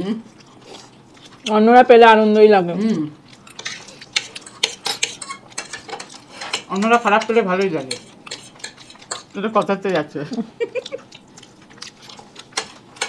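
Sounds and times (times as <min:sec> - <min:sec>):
forks clicking and scraping plates: 0:03.3 - 0:10.1, 0:10.8 - 0:13.0.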